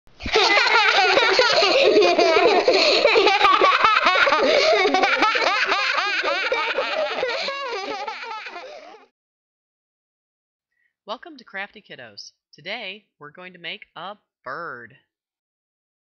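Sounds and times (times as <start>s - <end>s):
young children laughing: 0.2s - 9.0s.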